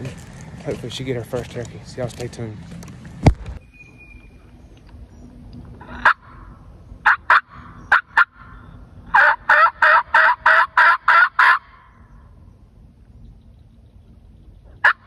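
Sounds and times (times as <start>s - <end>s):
turkey call yelps: 5.8s - 12.0s, 14.6s - 15.0s.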